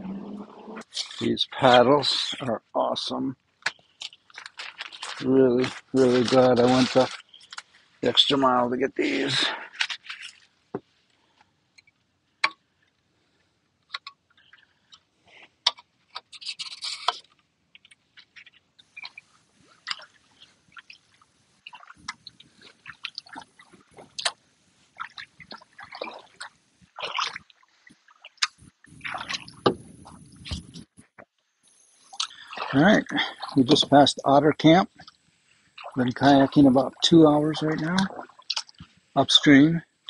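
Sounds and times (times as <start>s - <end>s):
faint high hiss: 0.0s - 9.8s, 27.6s - 40.0s
paddle strokes splashing water: 9.0s - 11.4s, 14.1s - 17.3s, 18.0s - 31.1s, 32.0s - 34.2s, 34.8s - 39.3s
water dripping off paddle: 13.8s - 15.9s, 17.8s - 30.8s, 32.0s - 34.3s, 35.0s - 39.1s.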